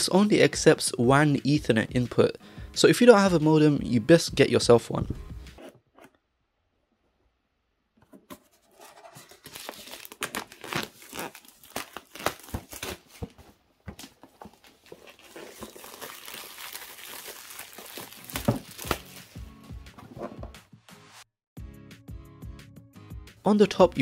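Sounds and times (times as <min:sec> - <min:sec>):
plastic wrap crinkling: 0:08.8 - 0:19.4.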